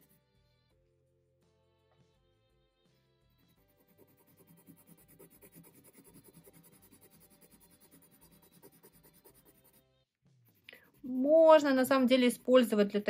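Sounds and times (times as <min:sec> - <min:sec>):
pencil scratching on paper: 0:00.0 - 0:00.2, 0:03.3 - 0:13.0.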